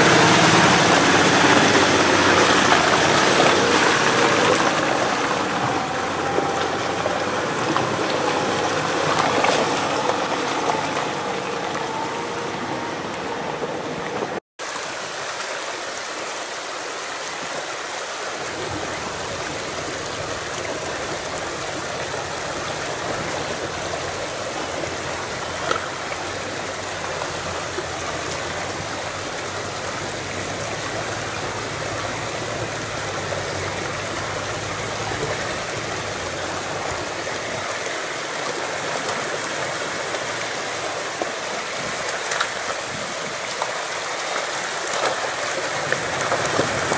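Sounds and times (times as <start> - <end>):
car engine pulling away: 0.0 - 14.4, 18.4 - 37.6
stream rushing over rocks: 0.0 - 46.9.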